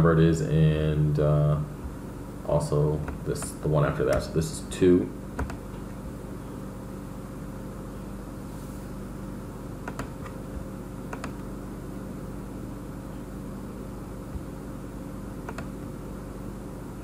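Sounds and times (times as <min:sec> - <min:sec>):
steady low hum: 0:00.0 - 0:17.0
computer mouse clicks: 0:05.4 - 0:05.6, 0:09.8 - 0:10.4, 0:11.1 - 0:11.5, 0:15.4 - 0:15.7.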